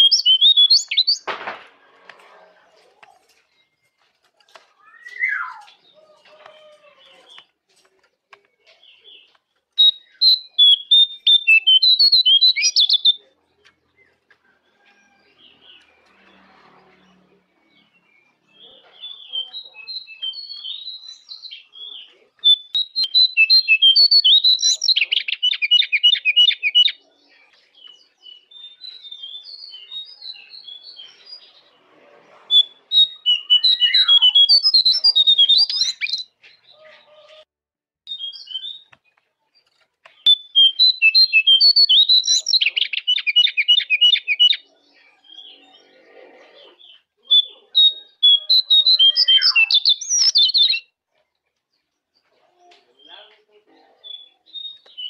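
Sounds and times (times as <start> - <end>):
songbird whistling and trilling: 0.0 - 1.3, 4.8 - 5.8, 9.8 - 13.2, 19.1 - 21.7, 22.5 - 27.0, 32.5 - 36.4, 38.1 - 38.9, 40.2 - 44.6, 47.3 - 50.9, 54.0 - 55.0.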